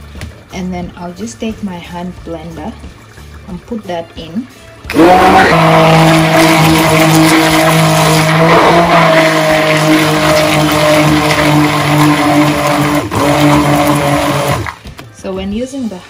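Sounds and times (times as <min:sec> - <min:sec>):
hand blender motor humming: 0:04.9 - 0:14.8.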